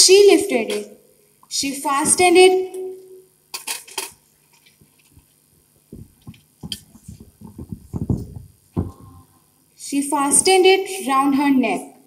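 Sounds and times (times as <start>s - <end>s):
microphone handling clicks: 5.9s - 9.1s
microphone handling thumps: 5.9s - 9.2s.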